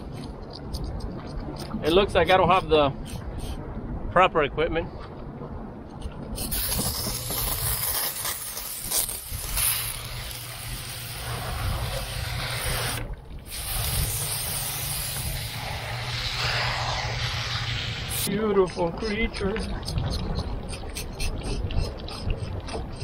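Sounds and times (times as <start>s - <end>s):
low hum: 0.0s - 23.0s
steady hiss: 6.4s - 18.3s.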